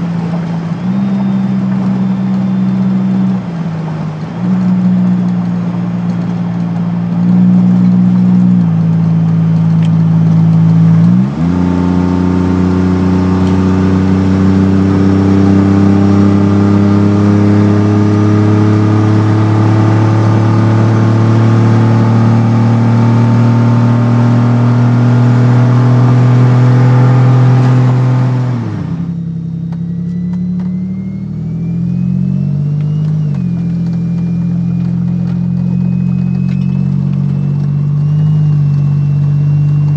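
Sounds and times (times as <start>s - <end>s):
suv engine accelerating hard: 0.0s - 39.9s
faint high whistle: 0.6s - 3.3s, 29.2s - 34.9s, 35.6s - 39.9s.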